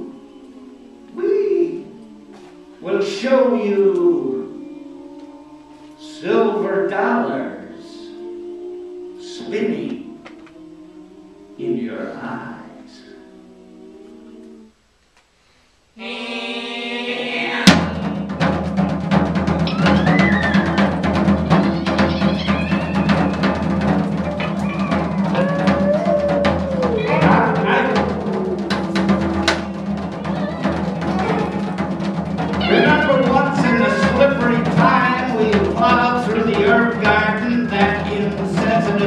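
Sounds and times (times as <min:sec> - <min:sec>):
loud percussion strike: 0:17.7 - 0:39.0
chamber ensemble playing: 0:19.4 - 0:39.0.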